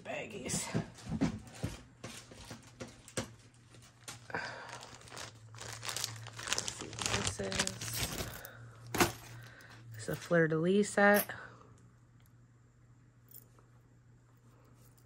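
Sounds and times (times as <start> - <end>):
plastic bags crinkling: 2.1 - 9.4.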